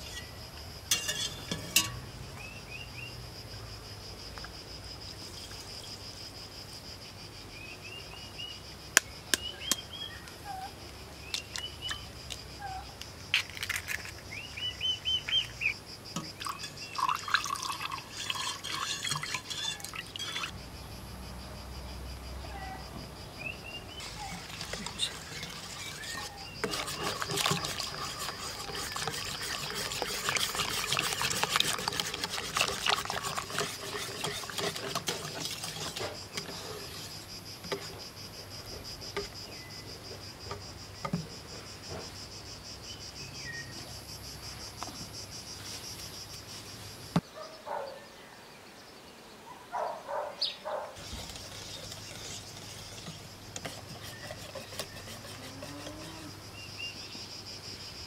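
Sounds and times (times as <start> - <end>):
insects chirring: 0.0 - 58.0
whisk beating batter in pot: 16.5 - 20.5, 24.0 - 37.0, 51.0 - 55.9.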